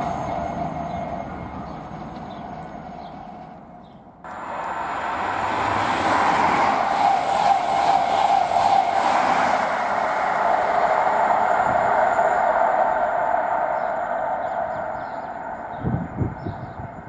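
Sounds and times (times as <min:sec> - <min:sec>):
train passing at speed: 0:00.0 - 0:17.0.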